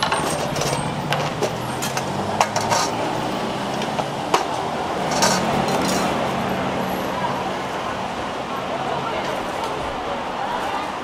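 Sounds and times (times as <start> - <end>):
metal cookware clinking: 0.0 - 3.2, 5.1 - 6.2
vehicle engine running: 0.0 - 9.2
street traffic: 0.0 - 11.0.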